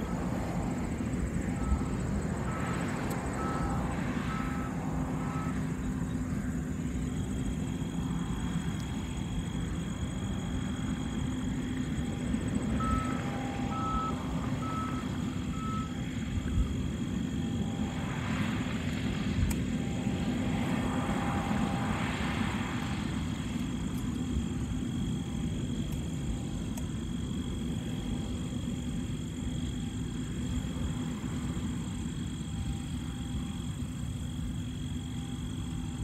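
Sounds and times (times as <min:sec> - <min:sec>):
engine drone: 0:00.0 - 0:36.0
electronic warning beeps: 0:01.5 - 0:06.0, 0:12.0 - 0:18.0.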